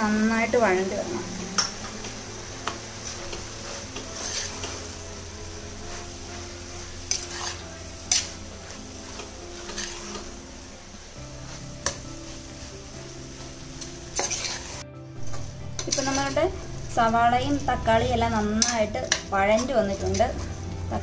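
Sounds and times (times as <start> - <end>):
onions frying in oil: 0.0 - 21.0
spoon scraping a pot: 2.6 - 4.8, 7.1 - 10.4, 13.8 - 16.6, 18.6 - 20.5.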